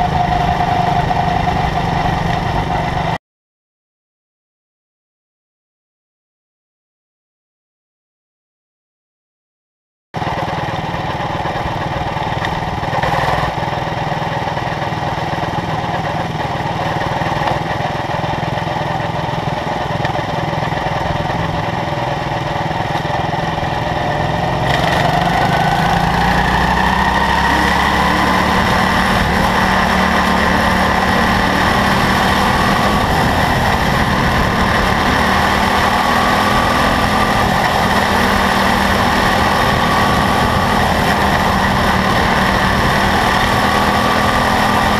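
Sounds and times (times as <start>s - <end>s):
small race car engine running: 10.2s - 44.9s.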